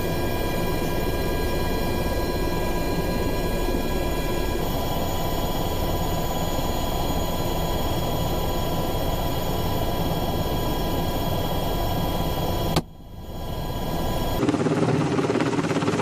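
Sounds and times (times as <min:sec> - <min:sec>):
helicopter engine and rotor noise: 0:00.0 - 0:16.0.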